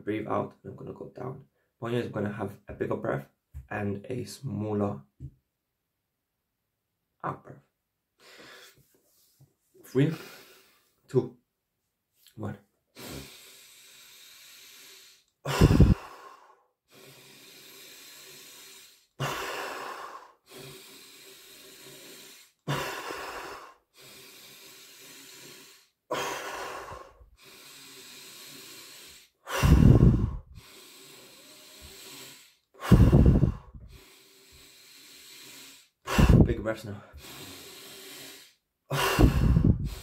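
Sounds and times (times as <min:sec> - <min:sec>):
man breathing in deeply: 0:08.2 - 0:09.0, 0:10.1 - 0:11.0, 0:13.0 - 0:40.0
loud short out-breaths: 0:15.5 - 0:16.1.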